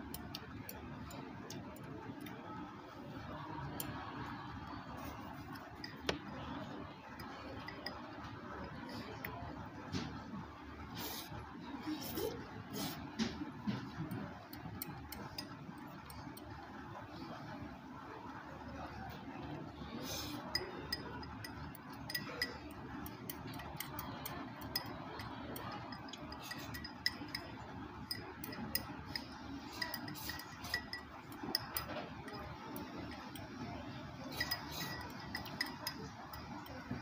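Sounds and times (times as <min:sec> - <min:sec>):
room hum: 0:00.0 - 0:37.0
chopsticks clinking on ceramic bowls: 0:20.3 - 0:37.0.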